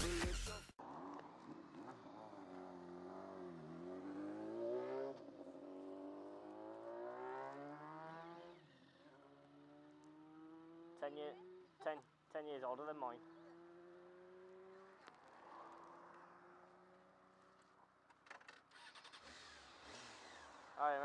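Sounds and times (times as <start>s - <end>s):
dance music: 0.0s - 0.7s
motorcycle engine revving: 0.8s - 21.0s.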